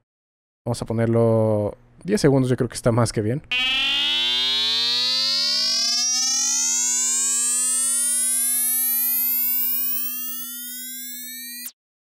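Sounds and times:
steady low synth tone: 3.5 - 11.7
higher synth tones gliding upward: 3.5 - 11.8.

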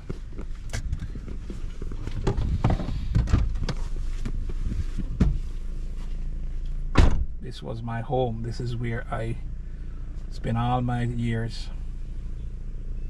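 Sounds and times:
car engine idling: 0.0 - 13.0
car door clicks and knocks: 6.9 - 7.4.

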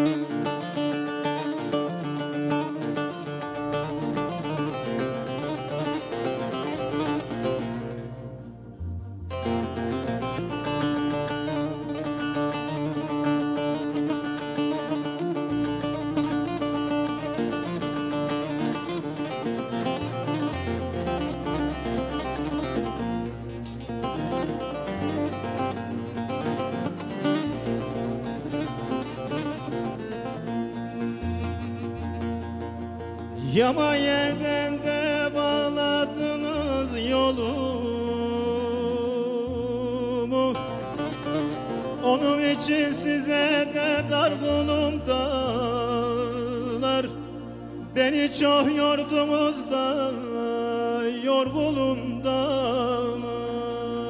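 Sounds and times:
long-necked lute picked fast: 0.0 - 54.0
low held bass: 6.8 - 13.9, 19.5 - 34.9.

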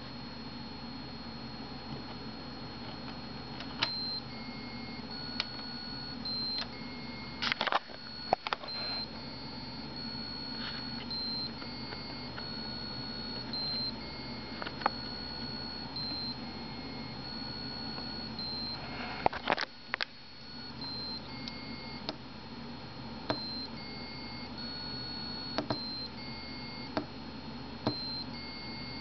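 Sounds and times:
continuous high-pitched beep: 3.8 - 19.0, 20.3 - 22.0, 23.3 - 26.9, 27.9 - 29.0.

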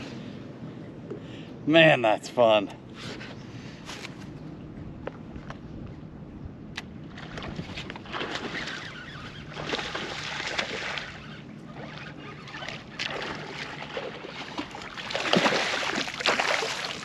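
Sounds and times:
water splashing and sloshing: 6.8 - 17.0.

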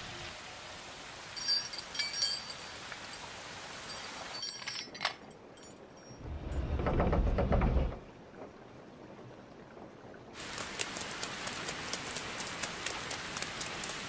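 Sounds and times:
rain hiss: 0.0 - 5.9, 9.0 - 14.0
wooden sliding door rumbling open: 6.3 - 8.5.

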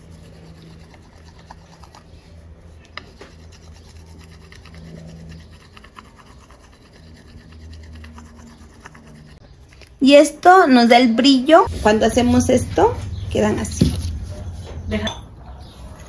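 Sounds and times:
stone scraping on clay cup: 0.0 - 9.4.

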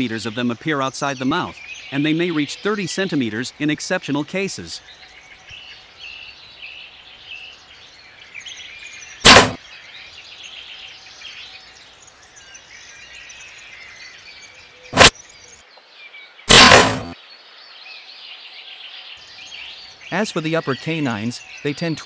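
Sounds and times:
birds chirping: 0.0 - 22.0
loud sudden hits: 9.3 - 9.6, 16.5 - 17.2.

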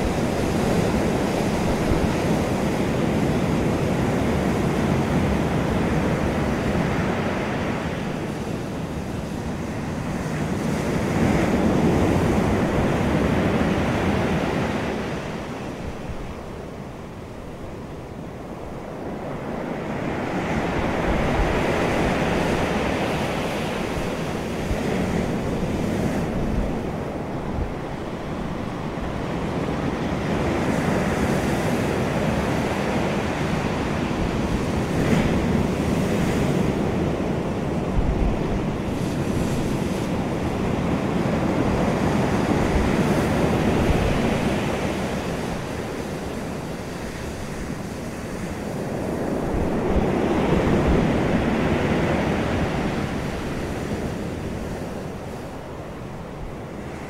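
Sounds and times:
surf washing on pebble beach: 18.8 - 57.0.

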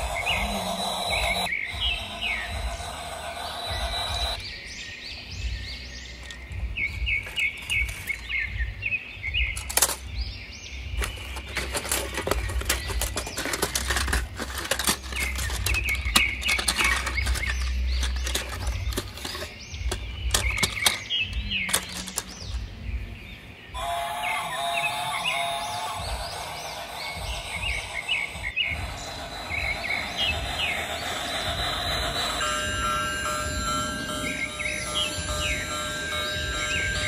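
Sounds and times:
birds chirping: 0.0 - 37.0
clatter of clicks and knocks: 11.0 - 22.6.

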